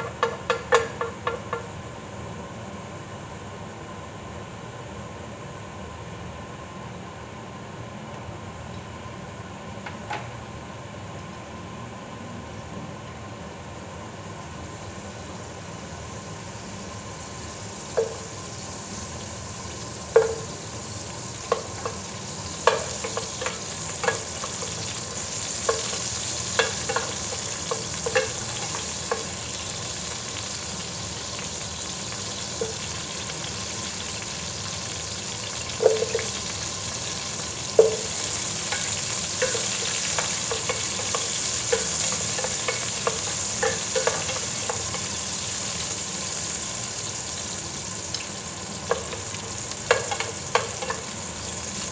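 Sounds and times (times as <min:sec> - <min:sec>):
spatula tapping pot: 0:00.0 - 0:01.7, 0:18.0 - 0:18.3, 0:20.1 - 0:20.5, 0:21.5 - 0:22.0, 0:22.6 - 0:24.8, 0:25.6 - 0:29.3, 0:35.8 - 0:36.4, 0:37.8 - 0:38.1, 0:38.7 - 0:45.0, 0:48.9 - 0:49.2, 0:49.9 - 0:51.1
oil sizzling: 0:14.8 - 0:51.9.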